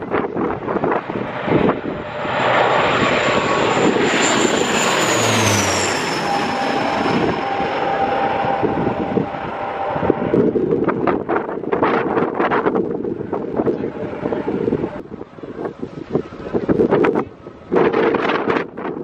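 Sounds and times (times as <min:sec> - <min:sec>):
turboprop airplane passing overhead: 0:00.0 - 0:19.0
high whine dropping in pitch: 0:01.6 - 0:12.0.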